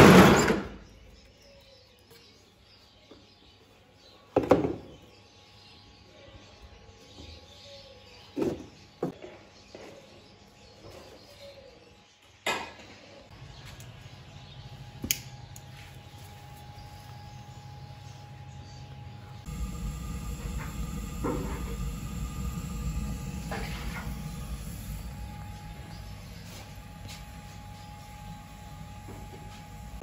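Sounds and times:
steady low hum: 0:13.3 - 0:30.0.

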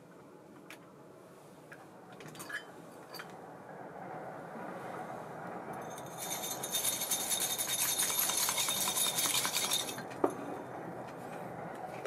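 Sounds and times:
reel spool whirring: 0:06.2 - 0:10.0.

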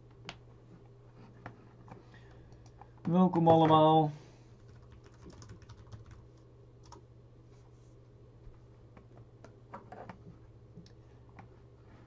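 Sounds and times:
low steady hum: 0:00.0 - 0:12.0
computer keyboard clicks: 0:04.6 - 0:06.2.

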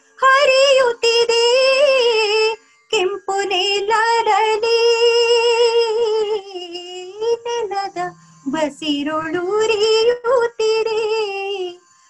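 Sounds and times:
woman singing unaccompanied: 0:00.0 - 0:11.8.

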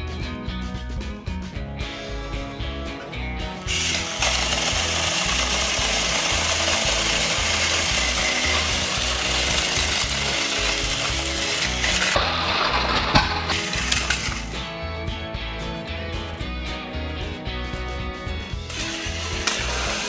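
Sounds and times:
background music: 0:00.0 - 0:20.0
toy train motors buzzing: 0:03.7 - 0:14.6, 0:18.7 - 0:20.0.

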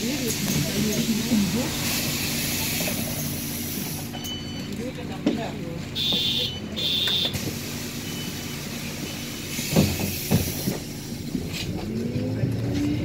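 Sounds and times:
bus engine running: 0:00.0 - 0:13.0
pneumatic doors closing: 0:00.2 - 0:04.5, 0:07.1 - 0:11.8
high electronic beeps: 0:04.0 - 0:04.8.

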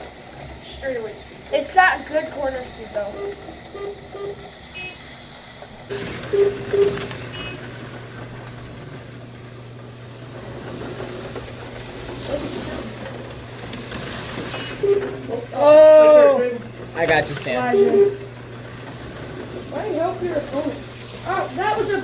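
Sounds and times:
low electrical hum: 0:00.0 - 0:22.0
slot car motors whirring: 0:00.0 - 0:22.0.

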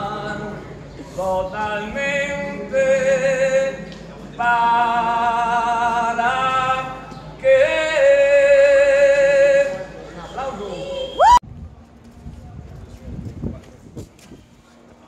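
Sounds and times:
elderly man singing unaccompanied: 0:00.0 - 0:10.0.

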